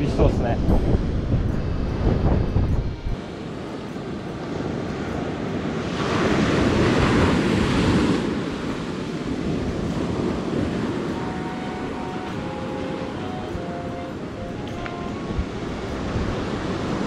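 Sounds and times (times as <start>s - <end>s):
surf washing up a sandy beach: 0.0s - 17.0s.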